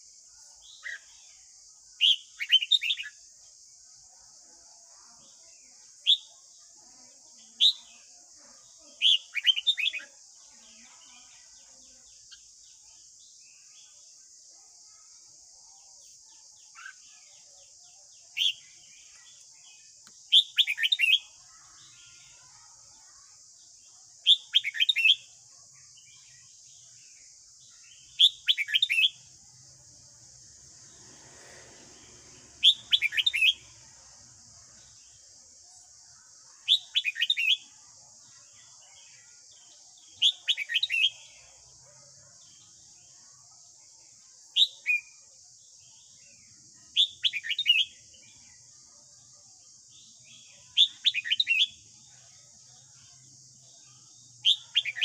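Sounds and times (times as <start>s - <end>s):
bird whistled song: 2.0s - 3.2s, 9.0s - 10.0s, 50.8s - 51.7s
steady high hiss: 29.0s - 36.5s.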